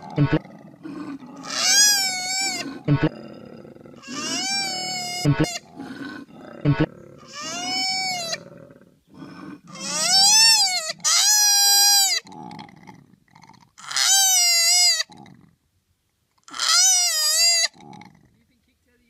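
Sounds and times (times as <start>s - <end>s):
low grunting: 0.0s - 9.8s
koala screaming: 1.4s - 2.7s, 4.0s - 5.7s, 7.2s - 8.4s, 16.5s - 17.8s.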